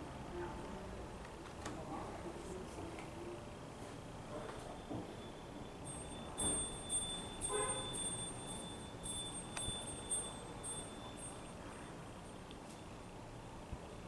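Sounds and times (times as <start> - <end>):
small high-pitched bell ringing: 5.2 - 11.6.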